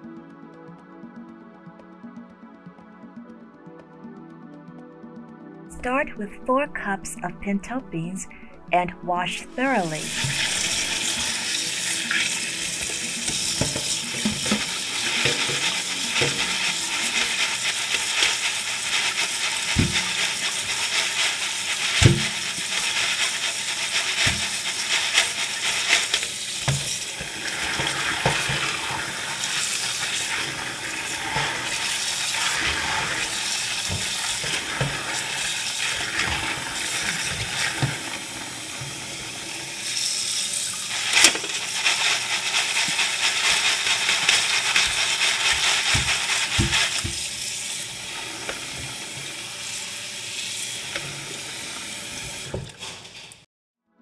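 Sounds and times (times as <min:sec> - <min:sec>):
tap water running: 0:10.0 - 0:53.4
beans rattling in colander: 0:10.2 - 0:37.7, 0:40.1 - 0:47.7.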